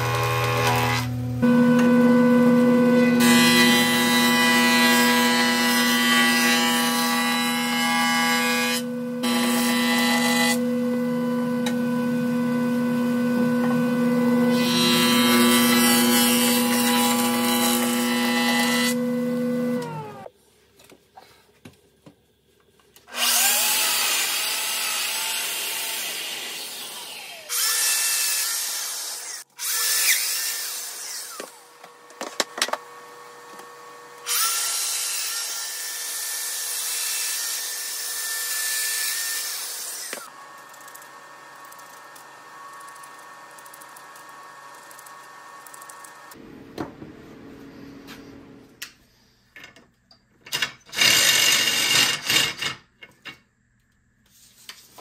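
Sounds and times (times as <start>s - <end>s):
power joiner cutting wood: 0.0s - 20.3s, 23.1s - 40.6s.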